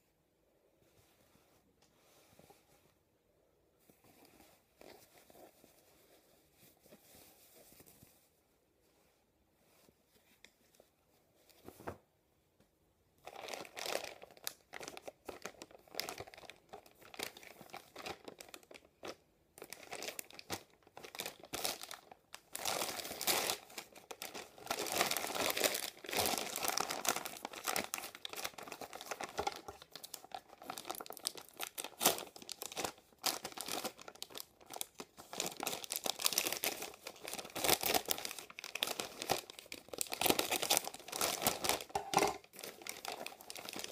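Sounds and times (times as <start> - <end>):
plastic mailer bag crinkling: 13.2 - 43.9.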